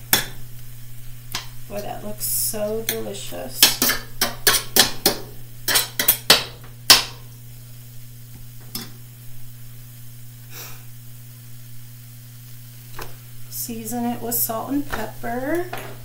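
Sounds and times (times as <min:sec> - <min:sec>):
low steady hum: 0:00.0 - 0:16.0
metal spoon scraping a skillet: 0:03.6 - 0:04.8, 0:05.7 - 0:06.3.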